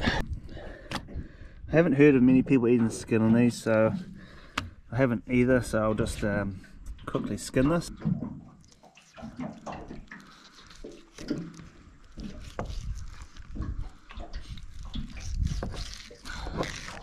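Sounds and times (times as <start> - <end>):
fish flesh being handled: 8.6 - 17.0
knife scraping fish: 9.0 - 17.0.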